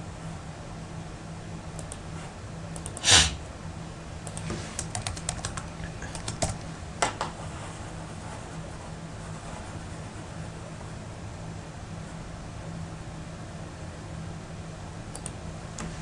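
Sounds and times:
faint low hum: 0.0s - 16.0s
computer keyboard typing: 4.2s - 6.6s.

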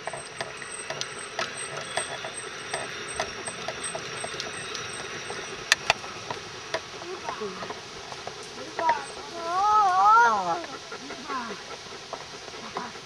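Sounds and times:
hand winch clicking: 0.0s - 7.5s.

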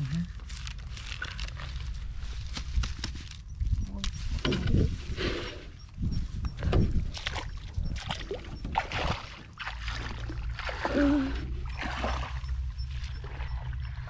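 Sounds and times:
low steady rumble: 0.0s - 14.0s
shallow water splashing and sloshing: 6.6s - 14.0s.

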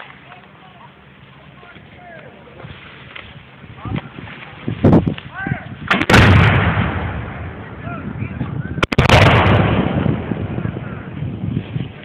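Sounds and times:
cannon blast rumbling: 5.8s - 11.5s
blank gunshots: 5.9s - 7.5s, 8.8s - 10.3s.

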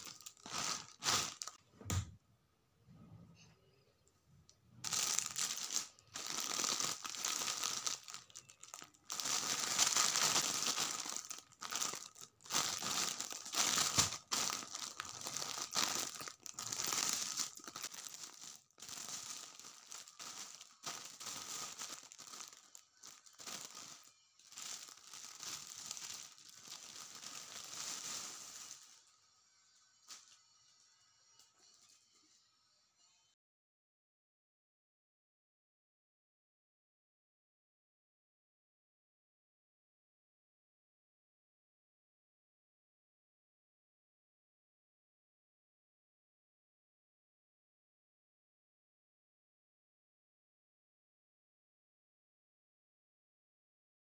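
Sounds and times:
plastic bag crinkling: 0.0s - 1.6s, 4.8s - 29.1s.

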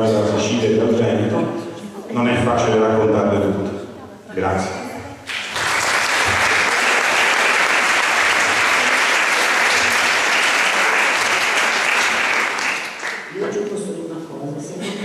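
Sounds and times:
audience applauding: 5.3s - 13.4s.

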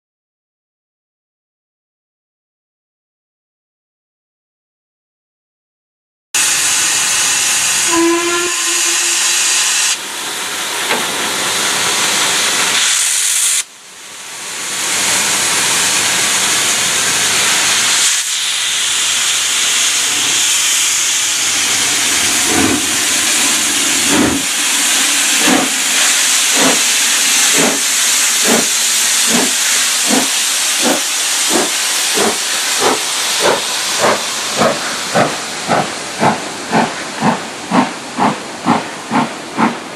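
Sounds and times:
low steam whistle: 6.4s - 10.0s
steam locomotive drain cocks hissing: 6.4s - 13.7s, 14.8s - 39.8s
locomotive exhaust beats: 19.6s - 39.8s.

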